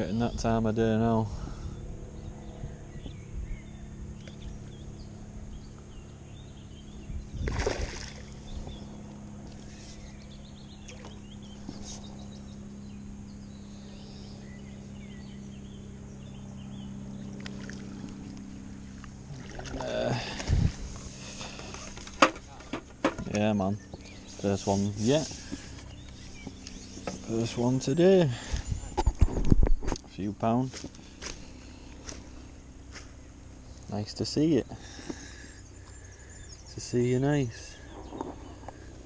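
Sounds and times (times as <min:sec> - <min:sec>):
steady low hum: 0:00.0 - 0:39.0
water splashing from fish: 0:07.4 - 0:08.4, 0:19.3 - 0:20.1.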